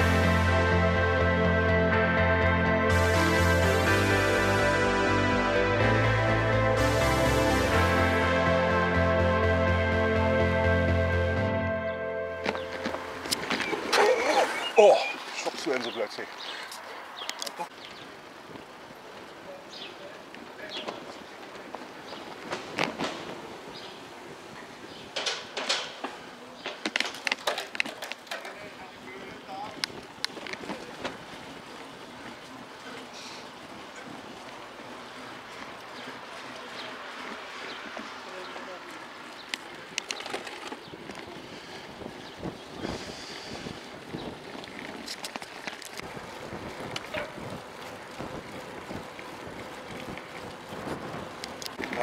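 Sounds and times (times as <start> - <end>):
bicycle knocking and rattling: 20.3 - 23.9, 24.5 - 52.0
wind rushing over microphone: 40.8 - 45.2, 46.0 - 52.0.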